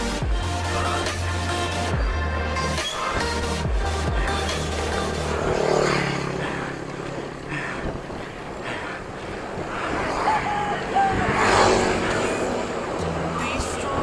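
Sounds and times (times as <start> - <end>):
road traffic: 0.0 - 14.0
wind noise: 7.3 - 14.0.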